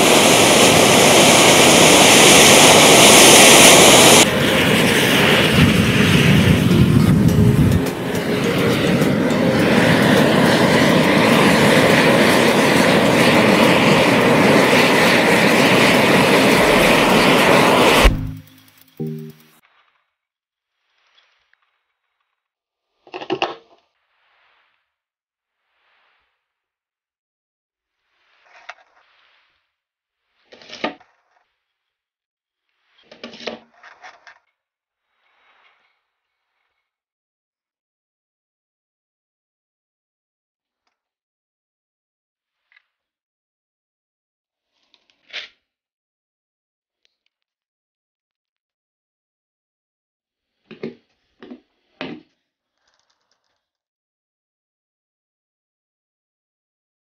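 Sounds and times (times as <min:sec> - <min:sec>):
sparkler hissing rush: 0:00.0 - 0:19.4.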